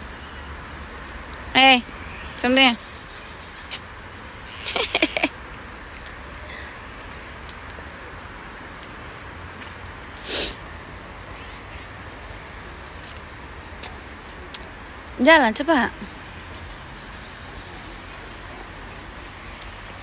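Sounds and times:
insect chirring: 0:00.0 - 0:20.0.

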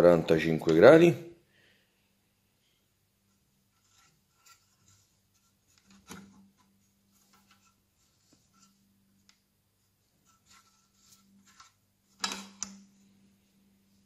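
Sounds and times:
metal clicks and rubbing: 0:10.2 - 0:12.9.

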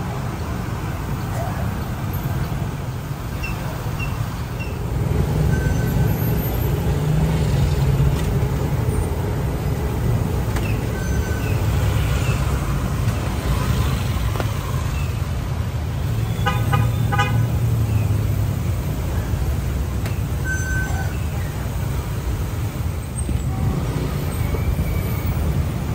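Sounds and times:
traffic engines rumbling: 0:00.0 - 0:25.9
vehicle horn beeps: 0:16.2 - 0:17.5.

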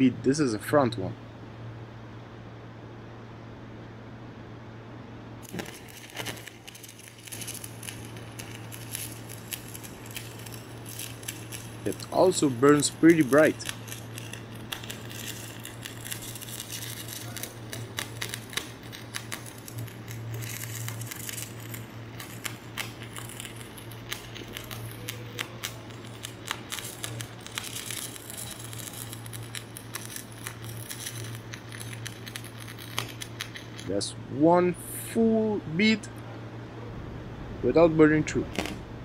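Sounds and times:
steady low hum: 0:00.0 - 0:39.0
welding arc crackling: 0:05.4 - 0:34.1, 0:37.7 - 0:39.0.

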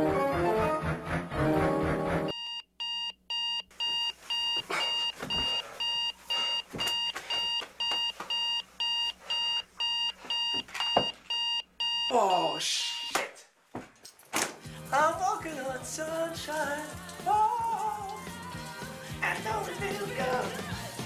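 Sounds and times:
alarm clock beeping: 0:02.3 - 0:12.2.

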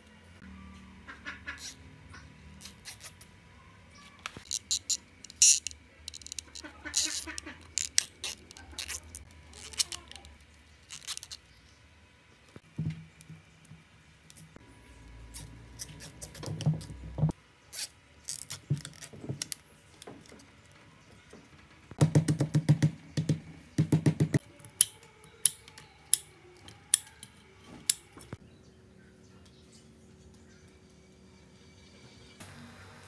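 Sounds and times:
cable ties rustling: 0:04.2 - 0:11.5.

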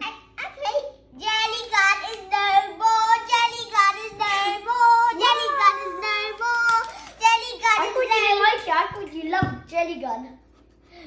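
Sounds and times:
child singing long held notes: 0:02.2 - 0:06.9.

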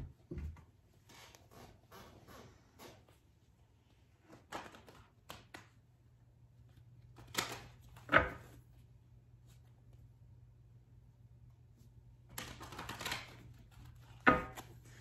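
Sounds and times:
cards clicking: 0:12.3 - 0:14.8
cards riffle shuffling: 0:12.3 - 0:15.0.

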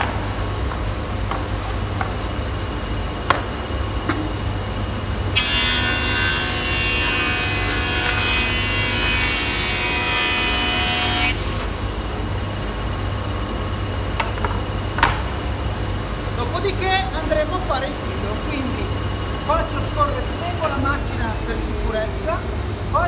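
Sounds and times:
planer cutting wood with whine: 0:05.4 - 0:12.1
machine idling hum: 0:11.4 - 0:23.0.

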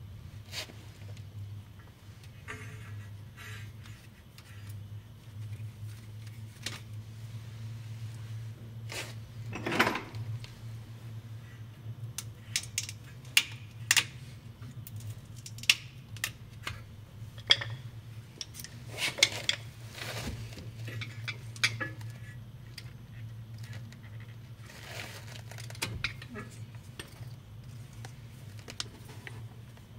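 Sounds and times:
steady low hum: 0:00.0 - 0:29.9
metal tools clinking: 0:09.5 - 0:10.3.

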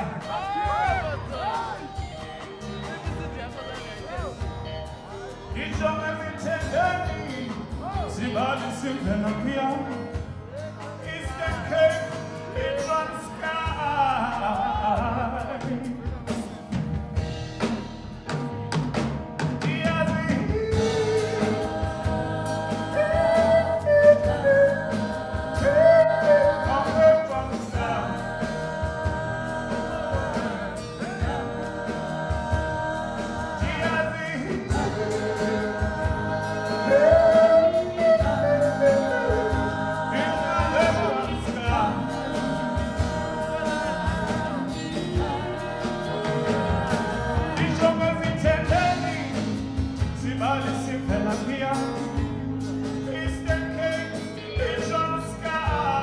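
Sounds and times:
voices singing in harmony: 0:00.0 - 0:04.2, 0:20.3 - 0:56.0
acoustic guitar: 0:00.0 - 0:56.0
electric bass: 0:00.0 - 0:56.0
keyboard: 0:00.0 - 0:56.0
man singing lead: 0:05.2 - 0:16.4, 0:19.6 - 0:21.8, 0:22.9 - 0:32.3, 0:33.4 - 0:52.3, 0:52.9 - 0:56.0.

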